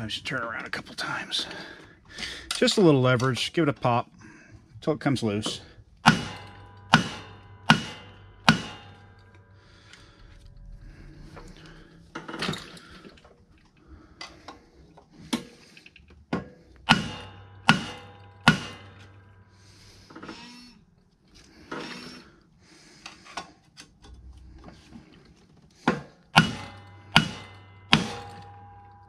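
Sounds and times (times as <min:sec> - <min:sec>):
hammer striking metal: 0:05.4 - 0:10.0, 0:16.4 - 0:20.5, 0:25.9 - 0:29.0.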